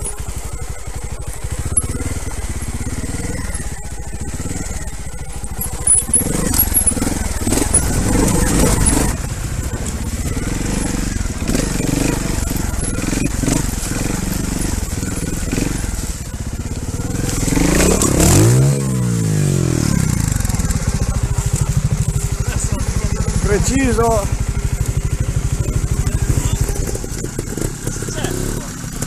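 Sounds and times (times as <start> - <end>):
motorcycle engine at low revs: 0.0 - 29.0
tyres crunching on stones: 0.0 - 29.0.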